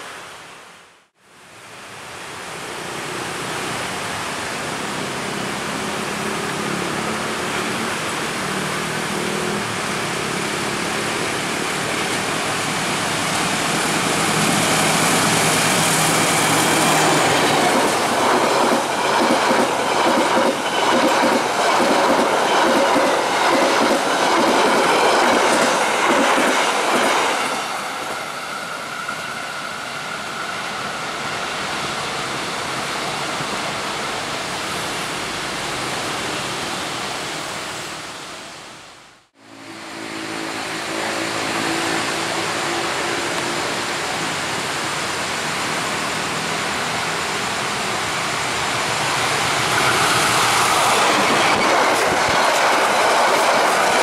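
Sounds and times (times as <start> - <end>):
diesel locomotive engine: 3.5 - 54.0
train rumble: 9.1 - 54.0
train wheels clickety-clack: 13.8 - 28.2, 48.5 - 54.0.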